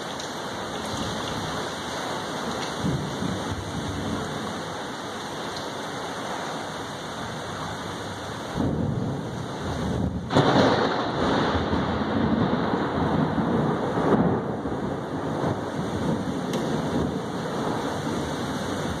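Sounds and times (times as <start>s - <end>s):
thunder rumbling: 0.0s - 4.8s, 7.2s - 19.0s
heavy rain: 0.0s - 19.0s
loud thunderclap: 2.8s - 4.3s, 8.5s - 19.0s.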